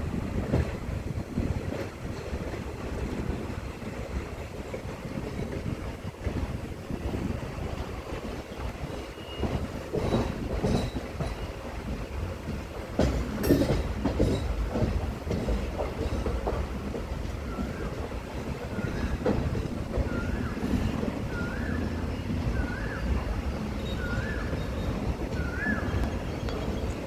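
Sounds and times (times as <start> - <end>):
train rumbling on rails: 0.0 - 27.0
train wheels knocking: 0.3 - 6.5, 8.2 - 22.7.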